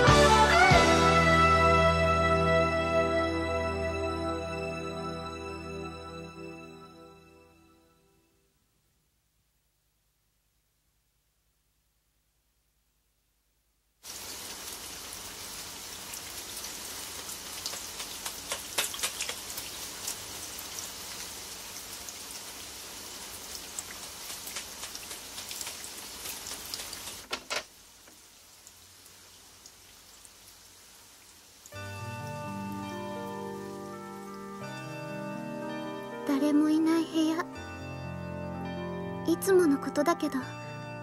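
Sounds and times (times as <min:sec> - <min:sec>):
rain falling: 0:14.0 - 0:37.6
drop splashes: 0:17.3 - 0:20.2.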